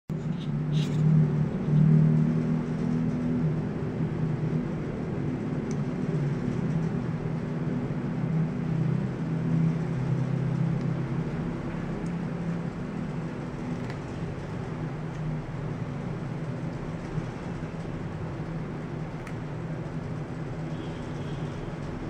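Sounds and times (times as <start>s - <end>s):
low mechanical hum: 0.1s - 22.0s.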